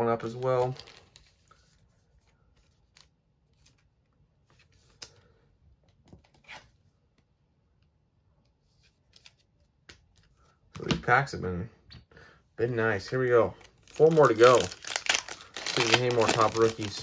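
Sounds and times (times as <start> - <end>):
soft plastic sleeve rustles: 0.2 - 5.1, 12.7 - 17.0.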